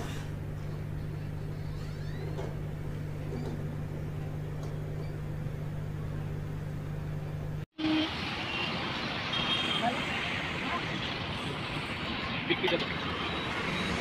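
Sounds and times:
low electrical hum: 0.0 - 7.7.

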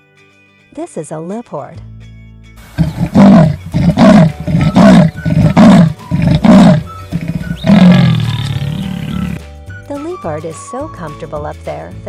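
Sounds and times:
leopard rasping grunts: 2.7 - 9.4.

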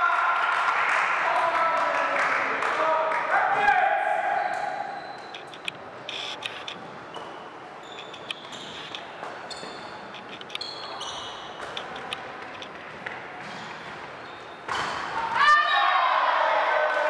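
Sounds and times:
sneakers squeaking on floor: 4.3 - 15.4.

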